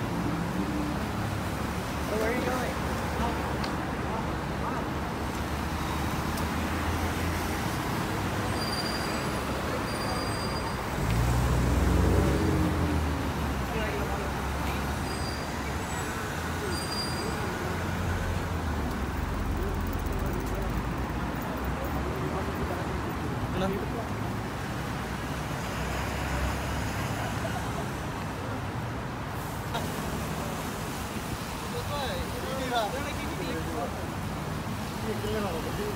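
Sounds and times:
bus engine rumble: 0:00.0 - 0:35.9
road traffic noise: 0:00.0 - 0:35.9
vehicle passing close: 0:10.9 - 0:13.4.

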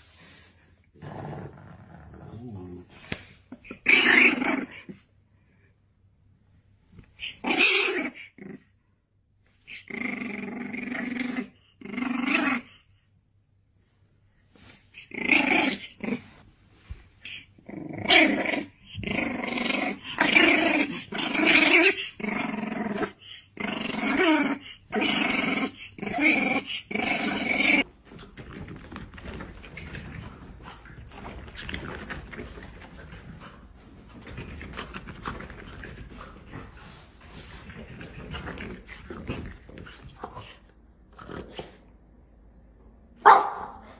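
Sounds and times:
puppy growling: 0:01.0 - 0:02.9, 0:09.7 - 0:12.7, 0:17.2 - 0:27.9, 0:28.5 - 0:41.9.

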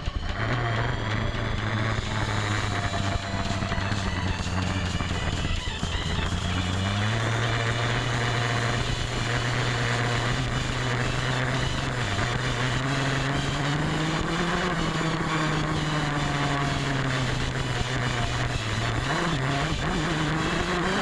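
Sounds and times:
dirt bike engine running: 0:00.0 - 0:21.0.

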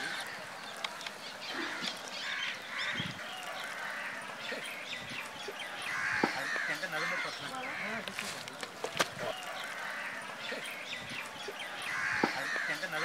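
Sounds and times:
crows cawing: 0:01.5 - 0:04.7, 0:05.7 - 0:08.2, 0:09.3 - 0:10.6, 0:11.7 - 0:13.0.

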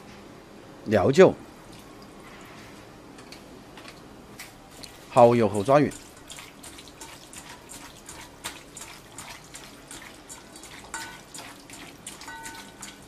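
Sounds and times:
wet squelches of meat mixing: 0:04.7 - 0:13.0.

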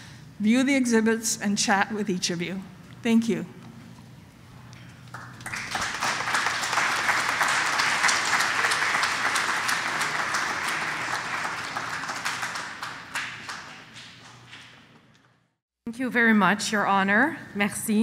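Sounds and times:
audience applauding: 0:05.1 - 0:15.0.

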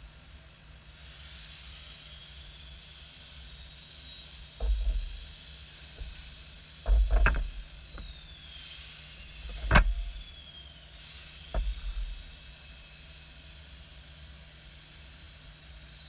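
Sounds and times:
hydraulic pump whining: 0:04.6 - 0:08.5, 0:09.2 - 0:10.7, 0:11.3 - 0:12.9.

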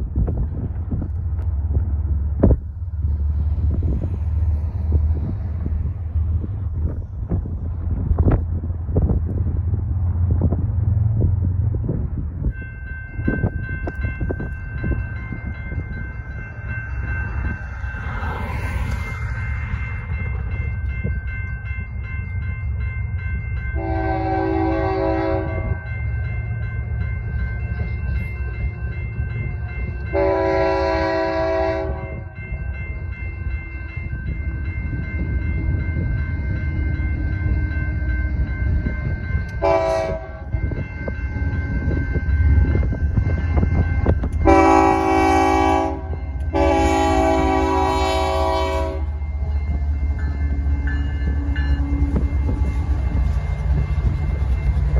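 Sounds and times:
low rumble of locomotives: 0:00.0 - 0:54.9
crossing bells ringing: 0:11.7 - 0:54.9
locomotive air horn blasts: 0:23.8 - 0:25.8, 0:30.1 - 0:32.2, 0:39.6 - 0:40.5, 0:44.4 - 0:49.2.

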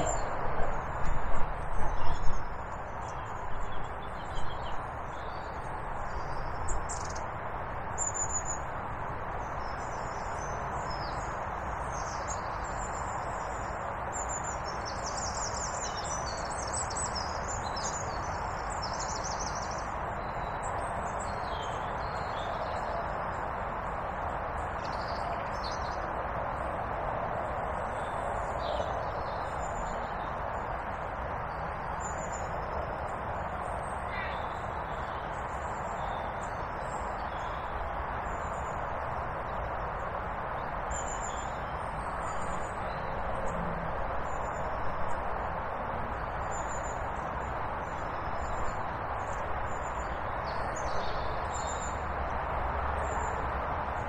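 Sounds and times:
songbirds chirping and trilling: 0:00.0 - 0:54.0.

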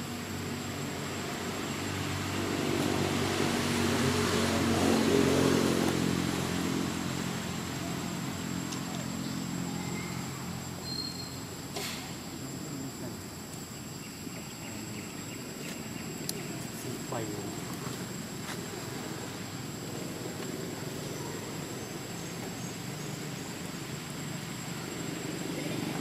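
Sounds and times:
vehicle engine passing by: 0:00.9 - 0:10.8.

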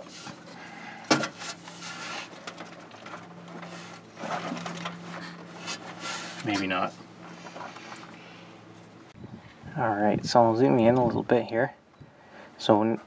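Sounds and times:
scraping and shuffling hand work: 0:00.0 - 0:08.9.

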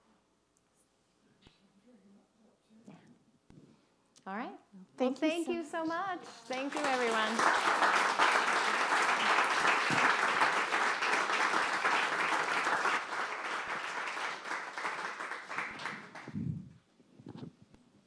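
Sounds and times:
audience applauding: 0:06.4 - 0:16.5.

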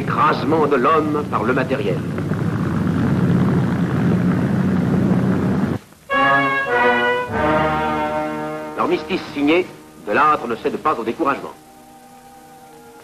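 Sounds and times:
music of long held chords: 0:06.1 - 0:13.0.

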